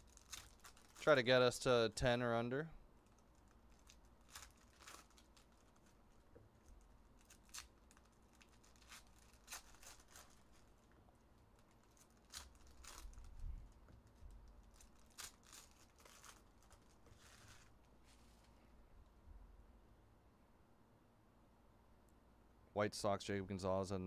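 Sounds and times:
foil wrappers crinkling and tearing: 0.0s - 1.3s, 3.0s - 17.8s.

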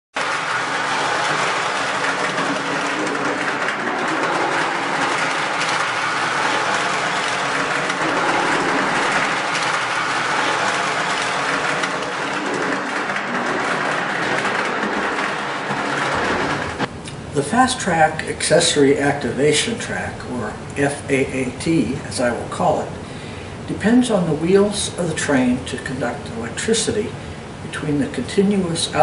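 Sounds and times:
model train rolling on track: 0.1s - 22.9s.

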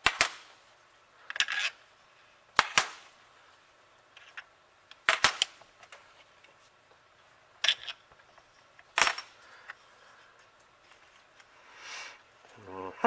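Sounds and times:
sharp metallic snaps: 0.0s - 0.5s, 2.6s - 3.1s, 4.9s - 6.0s.

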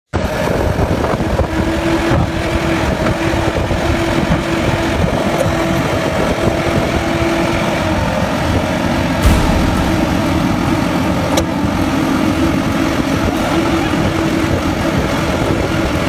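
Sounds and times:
steady whine: 9.2s - 12.2s.

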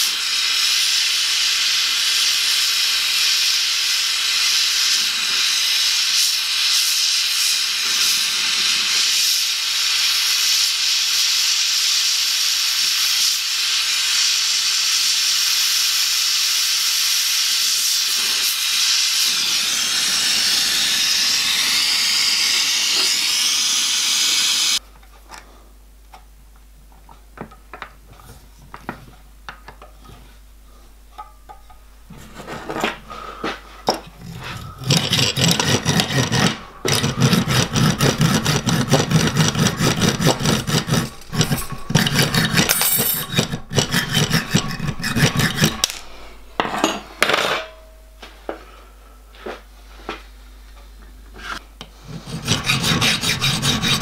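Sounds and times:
gas torch flame hissing: 0.0s - 24.8s, 32.1s - 47.2s
hand tool rasping metal: 34.2s - 47.0s, 51.4s - 54.0s.

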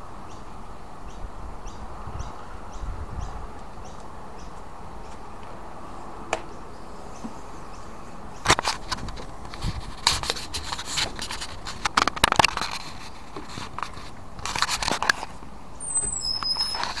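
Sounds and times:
camera handling noise: 8.4s - 15.4s.

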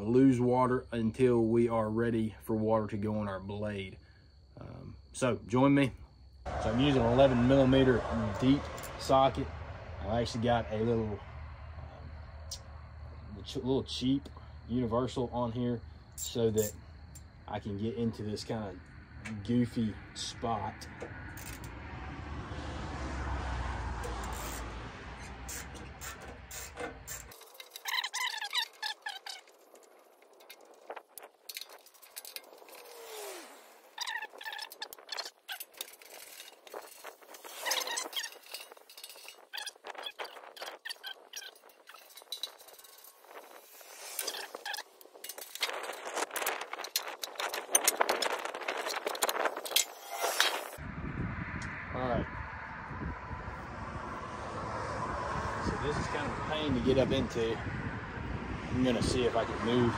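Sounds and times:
ratchet clicking: 24.0s - 33.4s
rushing noise with low rumble: 50.2s - 59.9s.

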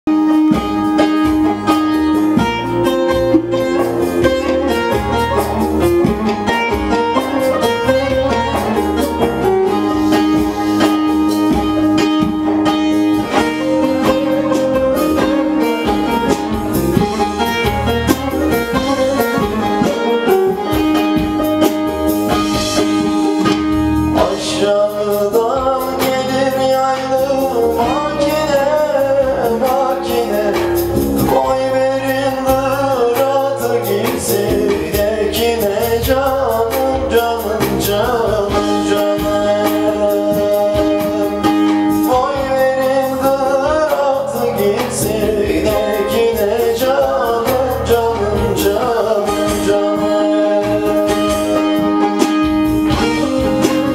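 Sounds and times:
low bass part: 0.1s - 33.0s
man singing: 0.1s - 53.9s
plucked lute folk melody: 0.2s - 53.9s.

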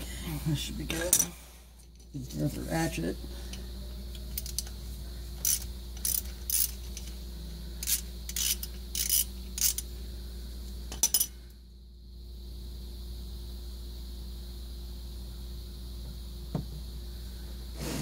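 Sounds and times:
ratchet clicking: 5.4s - 7.1s, 7.8s - 9.9s.

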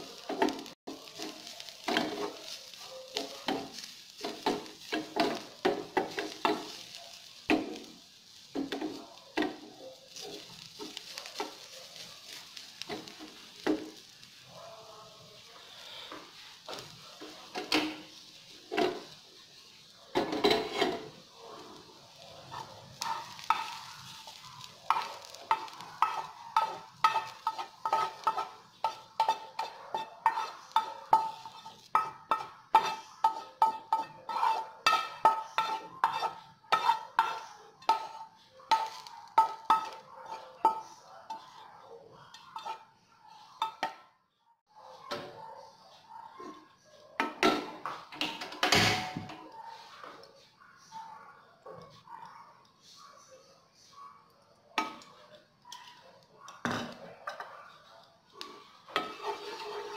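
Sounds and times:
wooden spatula scraping frying pan: 0.0s - 14.3s, 15.6s - 19.2s, 20.2s - 21.8s, 22.4s - 41.6s, 42.3s - 42.9s, 58.5s - 59.9s.

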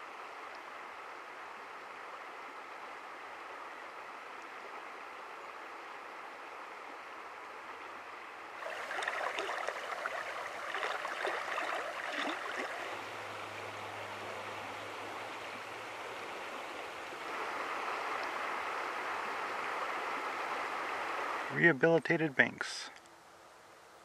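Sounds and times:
river water rushing over stones: 8.5s - 21.5s
water splashing and gurgling: 8.6s - 13.8s.

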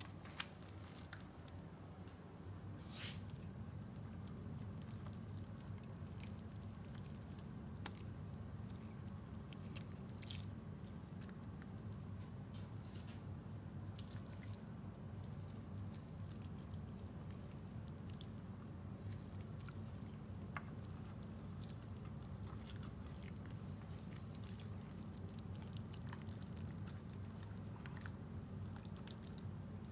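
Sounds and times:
steady low hum: 0.0s - 29.9s
wet squishes of raw meat: 3.1s - 11.9s, 13.9s - 29.9s.

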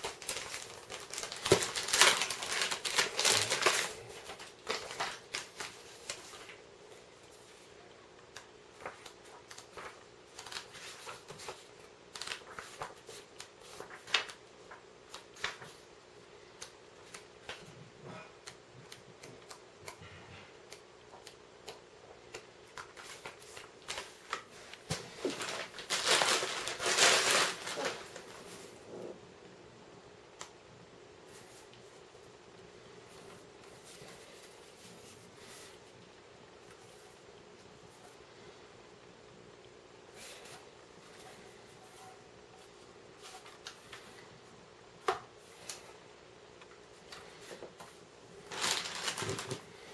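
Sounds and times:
plastic bag crinkling: 0.0s - 6.4s, 25.1s - 28.5s, 48.4s - 49.9s
paper pages flicking: 8.3s - 15.8s.

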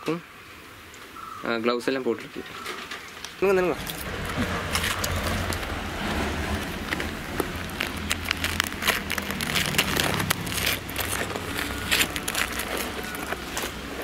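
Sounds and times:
insulation crackling and clicking: 2.2s - 14.0s
low steady rumble: 3.4s - 14.0s.

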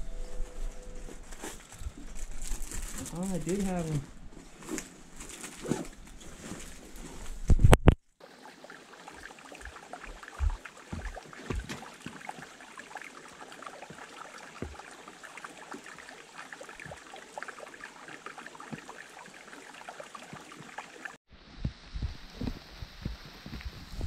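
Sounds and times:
stream trickling over rocks: 1.6s - 4.0s, 5.0s - 24.0s
soft low thumps: 10.1s - 11.8s.

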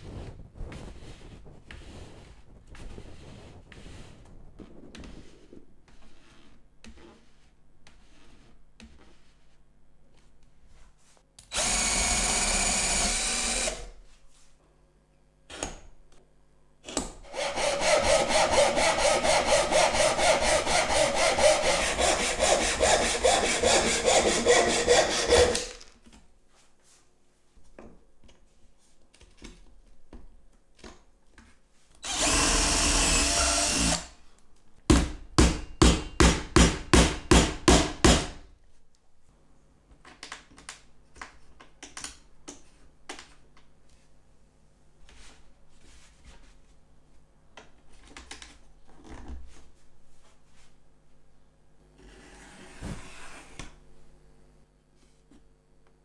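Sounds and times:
power drill boring through wood: 11.5s - 13.9s, 32.0s - 34.1s
saw rasping through wood: 17.3s - 25.7s.

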